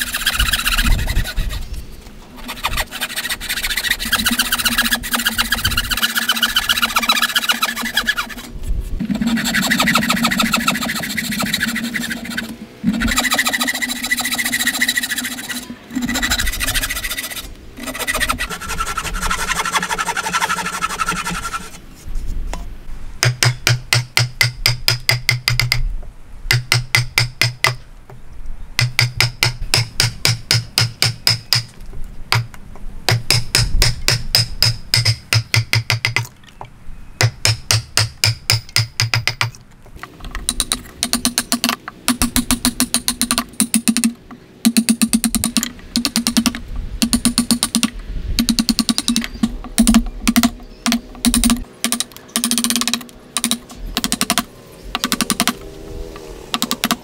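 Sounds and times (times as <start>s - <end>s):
saw rasping through wood: 0.0s - 1.6s, 2.4s - 21.8s
hammer striking chisel into wood: 23.2s - 25.8s, 28.8s - 31.7s, 33.1s - 36.3s, 37.2s - 39.5s.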